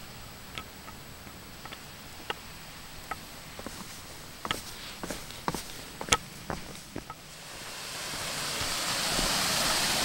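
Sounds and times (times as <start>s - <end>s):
footsteps on dirt and twigs: 3.0s - 7.3s
footsteps on wooden steps: 3.0s - 7.3s.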